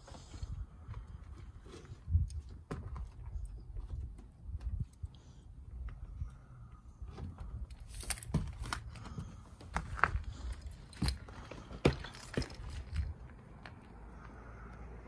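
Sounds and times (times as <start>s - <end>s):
footsteps crunching on debris: 7.8s - 13.9s.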